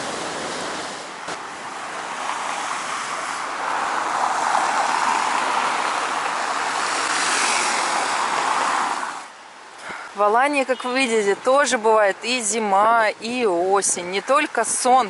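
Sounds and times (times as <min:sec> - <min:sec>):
outdoor rushing hiss: 0:00.0 - 0:05.7, 0:06.4 - 0:10.1.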